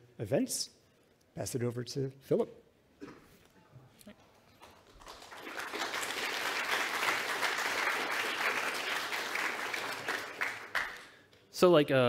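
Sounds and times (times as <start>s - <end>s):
audience applauding: 4.6s - 11.2s.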